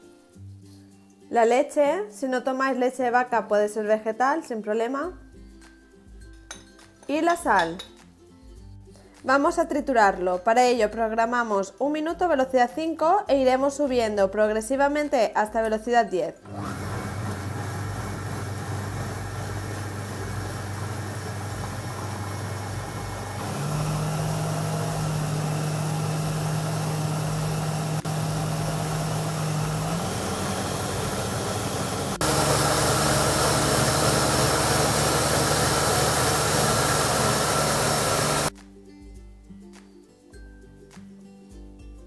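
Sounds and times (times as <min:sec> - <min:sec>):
blender motor running: 0:16.5 - 0:38.5.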